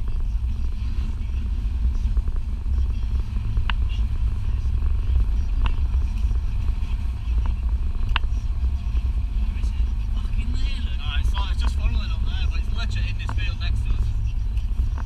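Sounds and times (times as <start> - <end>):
car road and engine rumble: 0.0 - 15.0.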